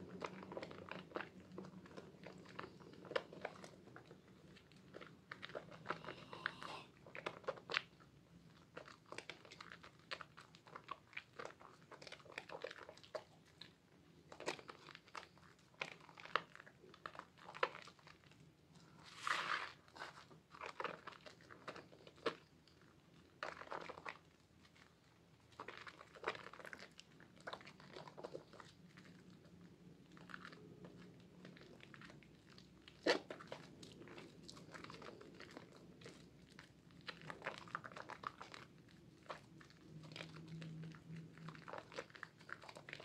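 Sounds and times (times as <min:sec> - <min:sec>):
sponge squelching in soap foam: 0:08.6 - 0:22.8, 0:23.4 - 0:43.0.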